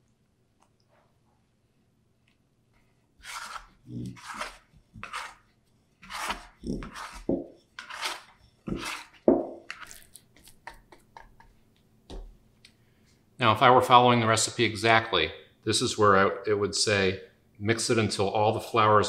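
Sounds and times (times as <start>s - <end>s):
hands mixing dough in bowl: 3.2s - 11.8s.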